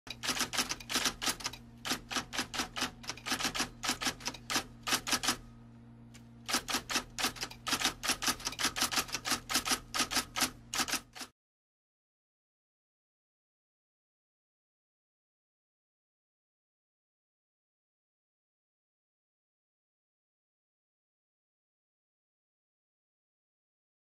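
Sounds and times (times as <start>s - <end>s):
typewriter keys clacking: 0.1s - 5.4s, 6.5s - 11.3s
faint low hum: 0.2s - 9.2s.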